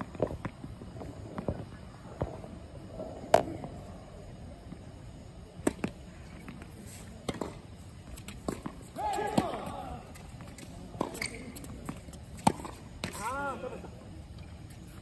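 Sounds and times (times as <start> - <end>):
tennis ball bouncing on court: 3.3 - 3.6, 5.6 - 6.6, 7.2 - 13.3
racket hitting tennis ball: 5.6 - 13.4.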